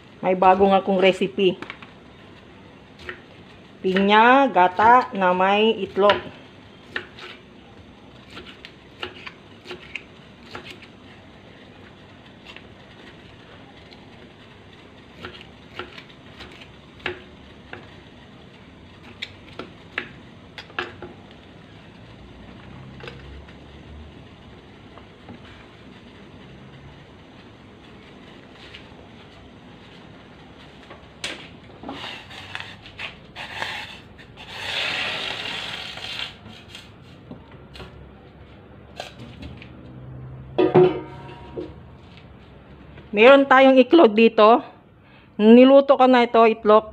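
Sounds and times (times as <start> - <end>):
objects rubbing and scraping: 31.8 - 37.2.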